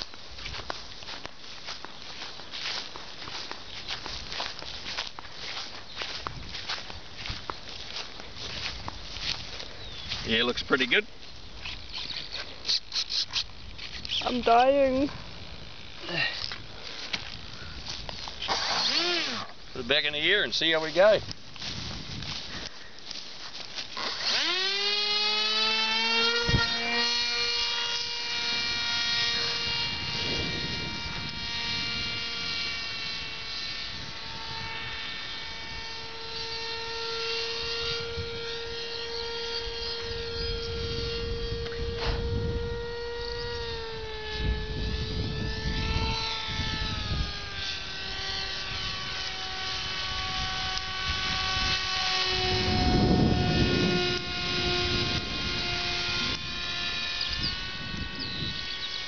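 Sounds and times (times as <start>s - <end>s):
electric motor and propeller whine: 0.0s - 59.0s
wind rumble on microphone: 1.6s - 10.8s, 19.3s - 22.7s, 26.2s - 59.0s.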